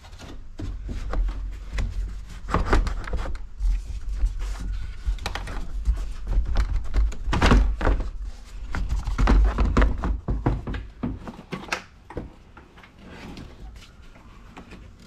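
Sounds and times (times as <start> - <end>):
hollow plastic thunks and knocks: 4.9 - 12.4.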